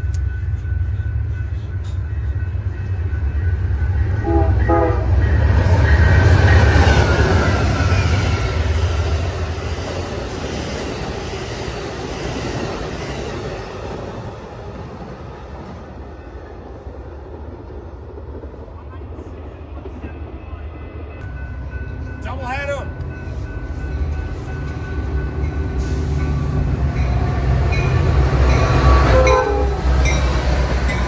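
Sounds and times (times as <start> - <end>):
train cars rushing by: 0.0 - 31.0
train horn blast: 4.1 - 5.4, 28.6 - 30.0.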